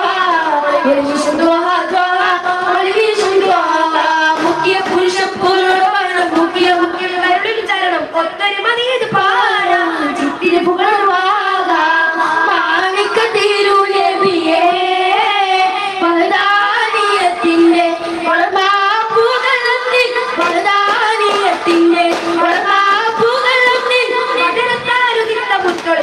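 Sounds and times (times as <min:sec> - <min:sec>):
boys singing devotional chant: 0:00.0 - 0:26.0.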